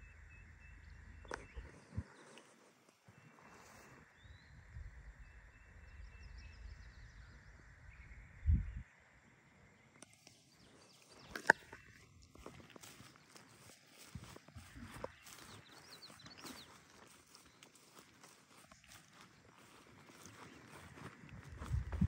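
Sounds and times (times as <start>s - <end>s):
faint bird chirps: 0.0s - 22.0s
low rumbling on microphone: 21.3s - 22.0s.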